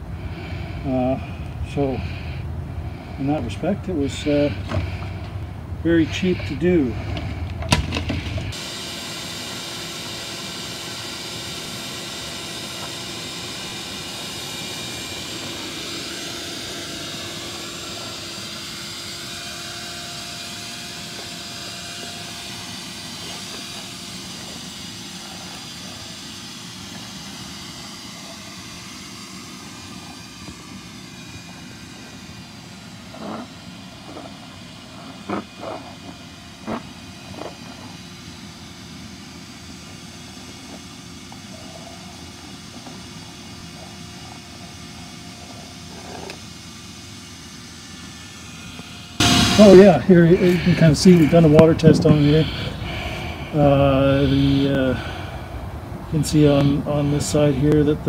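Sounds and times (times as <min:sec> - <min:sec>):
shop vacuum motor whine: 0:00.0 - 0:58.0.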